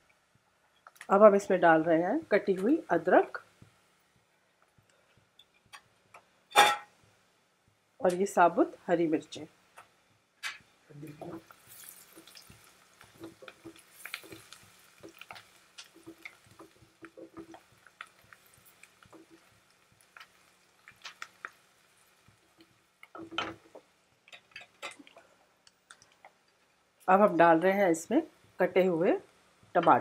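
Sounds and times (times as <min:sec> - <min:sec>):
oil frying with small pops: 0:00.0 - 0:01.7, 0:02.3 - 0:08.7, 0:09.5 - 0:27.6, 0:28.2 - 0:30.0
spatula stirring and scraping: 0:11.2 - 0:25.2.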